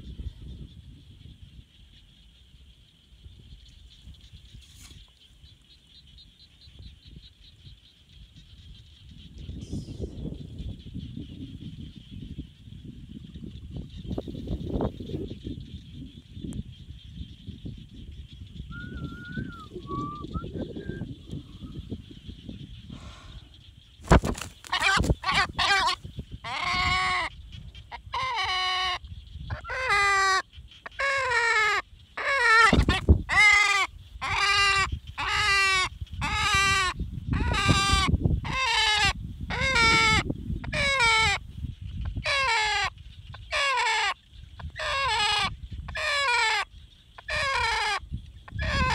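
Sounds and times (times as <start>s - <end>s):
bird calling: 18.4s - 41.4s, 42.0s - 48.9s
wings flapping: 24.0s - 26.0s.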